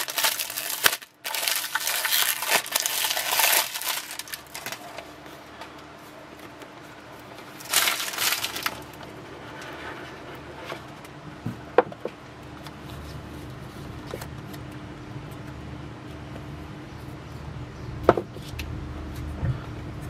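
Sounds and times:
cardboard box being opened: 0.0s - 5.0s, 7.6s - 8.9s
cellophane wrap crinkling: 0.0s - 5.3s, 7.4s - 9.1s.

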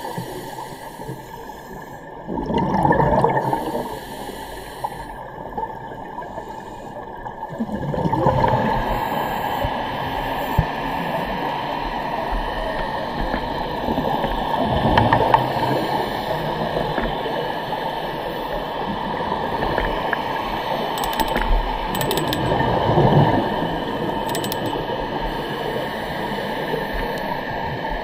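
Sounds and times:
scuba regulator bubbles: 0.0s - 6.8s, 7.4s - 11.5s
muffled underwater water rush: 0.0s - 28.0s.

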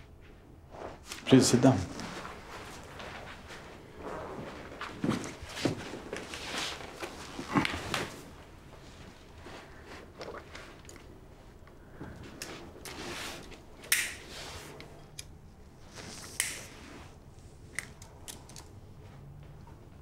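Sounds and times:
faint clicks and handling noises: 17.7s - 20.0s.

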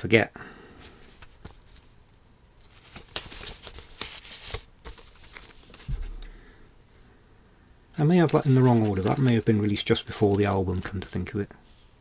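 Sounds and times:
paper sleeves rustling and sliding: 0.8s - 2.0s, 2.6s - 6.2s, 8.1s - 12.0s.

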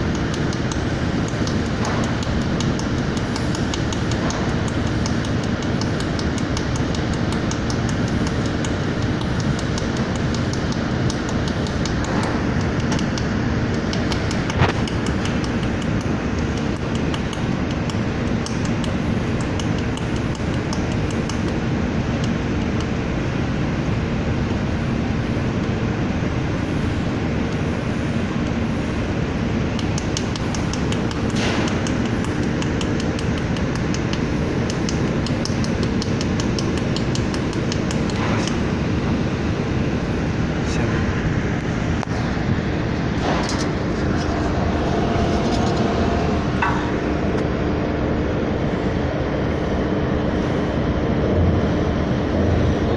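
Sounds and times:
fast even ticking of laser: 0.0s - 23.0s
laser welding machine humming: 0.0s - 52.9s
sharp click: 0.1s - 21.6s, 29.7s - 38.8s, 43.2s - 47.1s.

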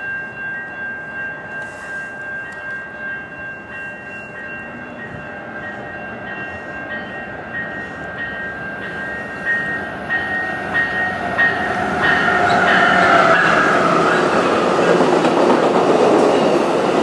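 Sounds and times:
train rumbling by: 3.0s - 17.0s.

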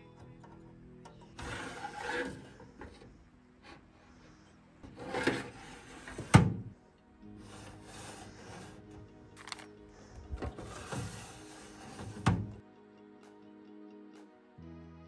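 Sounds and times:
soft background music: 0.0s - 15.0s
metal drawers sliding: 1.1s - 3.8s, 4.8s - 6.7s, 7.4s - 8.8s, 10.4s - 12.6s
metal drawer clunk: 5.0s - 6.7s, 10.4s - 12.6s.

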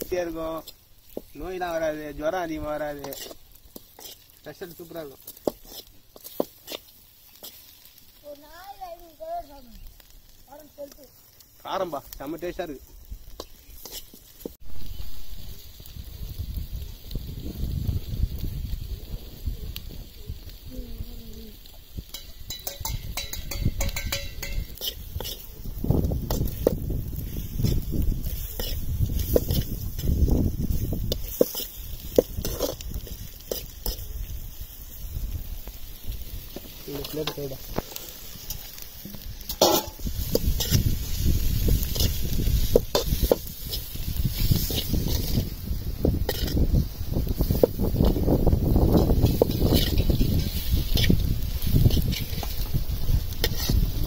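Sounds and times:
spoon scraping metal pan: 3.0s - 4.3s, 13.4s - 14.2s, 22.1s - 25.5s, 28.3s - 30.1s, 37.0s - 40.9s, 46.2s - 46.6s
spoon scraping pan: 3.0s - 7.8s, 13.4s - 14.6s, 22.1s - 26.8s, 27.6s - 34.1s, 36.5s - 45.5s, 46.2s - 46.7s, 48.9s - 52.6s, 53.4s - 53.9s
spoon tapping on pan: 22.1s - 24.9s.

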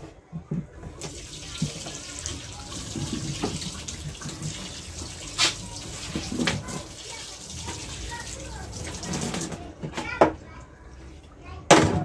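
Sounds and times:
tap water splashing into sink: 0.9s - 9.6s.

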